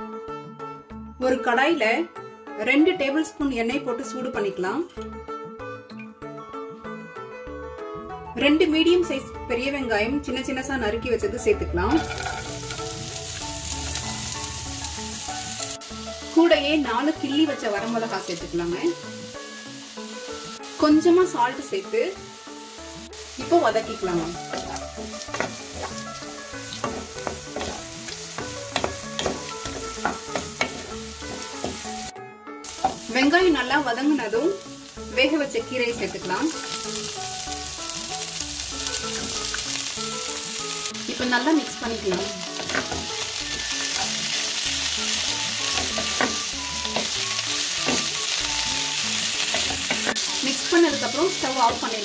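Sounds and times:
soft background music: 0.0s - 52.0s
onions sizzling in hot oil: 11.9s - 52.0s
spatula scraping a pan: 12.0s - 13.0s.

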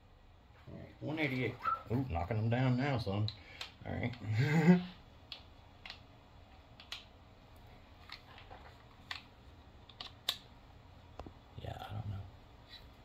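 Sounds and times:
person speaking: 0.6s - 5.0s.

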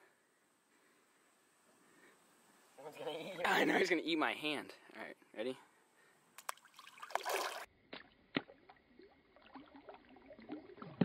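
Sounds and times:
water dripping and splashing: 6.4s - 11.0s.

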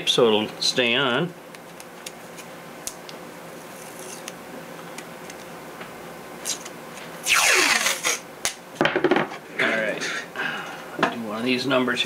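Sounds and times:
tape ripping off roll: 6.4s - 8.6s.

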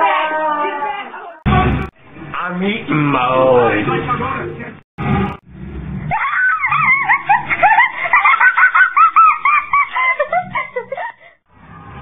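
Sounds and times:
high-pitched voice shrieking: 6.1s - 7.1s.

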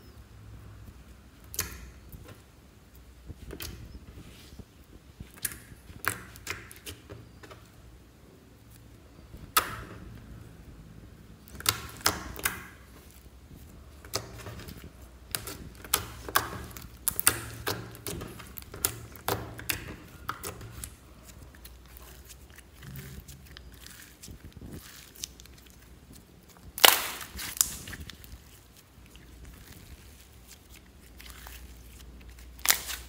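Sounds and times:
slime squished by hand: 11.4s - 33.0s.

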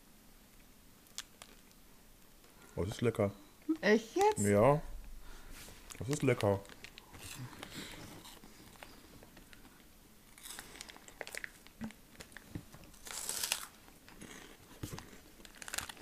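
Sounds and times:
crunching bites and chewing: 1.0s - 1.8s, 10.3s - 16.0s
plastic wrapper crinkling: 1.0s - 1.8s, 5.8s - 16.0s.

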